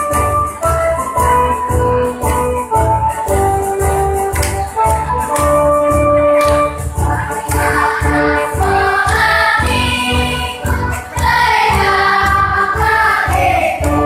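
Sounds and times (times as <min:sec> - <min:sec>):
electronic keyboard accompaniment: 0:00.0 - 0:14.0
children's choir singing: 0:06.8 - 0:14.0.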